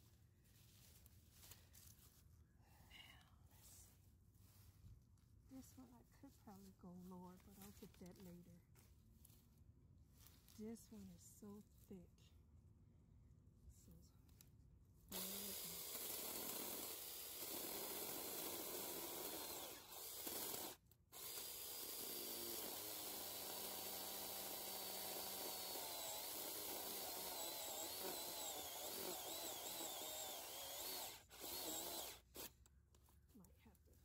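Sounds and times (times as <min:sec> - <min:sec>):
mini chainsaw cutting branch: 0:15.1 - 0:32.6.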